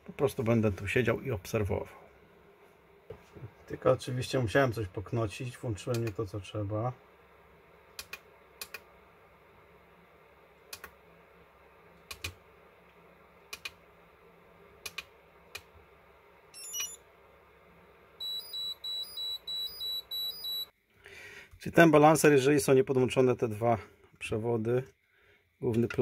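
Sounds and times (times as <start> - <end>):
charger buttons clicking: 14.8 - 15.7
electronic chirp: 16.6 - 17.0, 18.2 - 20.7
high beeps: 16.6 - 17.0, 18.2 - 20.7.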